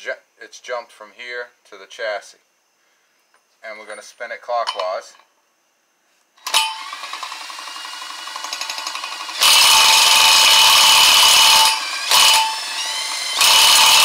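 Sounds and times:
impact hammer bursts: 0:06.4 - 0:14.0
impact tool spinning generator: 0:06.4 - 0:14.0.

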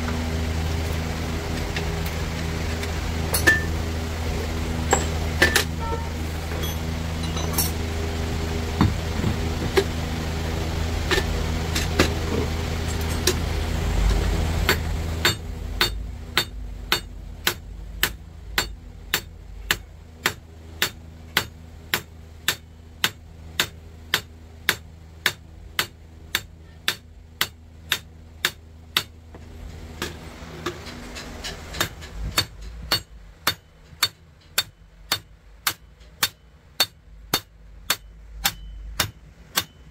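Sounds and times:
machine humming: 0:00.0 - 0:39.9
hammer striking metal: 0:03.3 - 0:03.8, 0:04.8 - 0:07.8, 0:14.6 - 0:29.2, 0:30.0 - 0:39.9.

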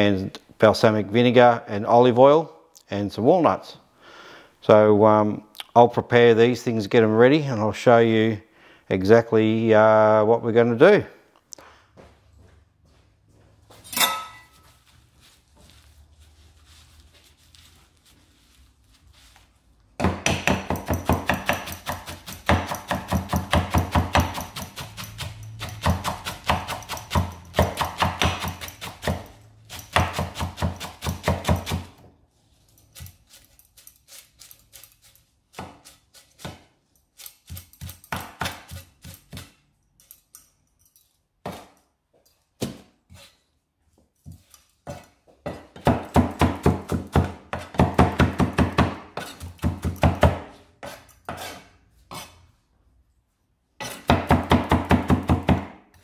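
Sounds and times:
knife chopping on wooden board: 0:20.0 - 0:32.0, 0:37.5 - 0:39.5, 0:44.8 - 0:52.3, 0:53.8 - 0:55.8.

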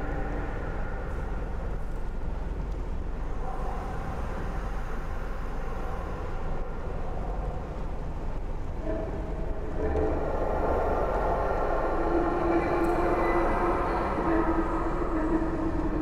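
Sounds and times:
low mechanical rumble: 0:00.0 - 0:16.0
noisy haze: 0:00.0 - 0:16.0.

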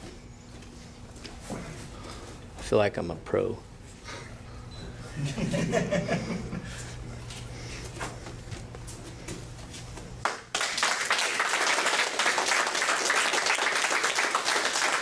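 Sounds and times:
people applauding: 0:10.2 - 0:15.0.

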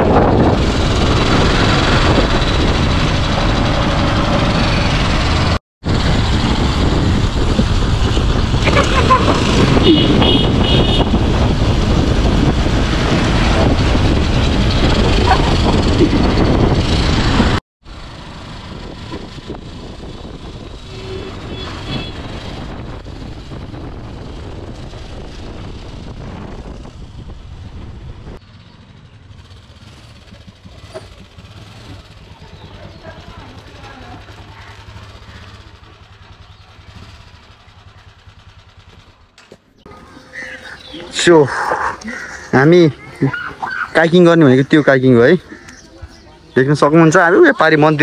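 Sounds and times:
wind rush on microphone: 0:00.0 - 0:03.6, 0:05.8 - 0:17.6, 0:18.5 - 0:28.4
motorcycle engines: 0:00.0 - 0:48.0.

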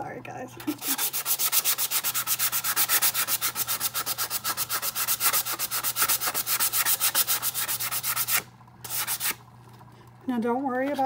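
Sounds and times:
sandpaper rasping on mug: 0:00.7 - 0:09.4.

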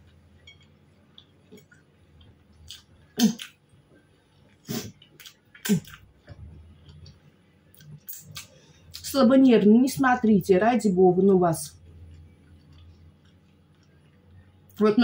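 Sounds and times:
quiet chewing: 0:00.9 - 0:09.0, 0:11.8 - 0:14.8
lip smacks: 0:04.5 - 0:06.1, 0:06.8 - 0:09.0.

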